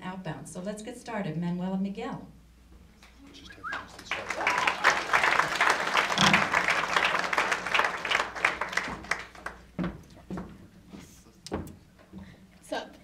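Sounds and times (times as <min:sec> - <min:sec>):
audience applause: 0:03.5 - 0:09.8.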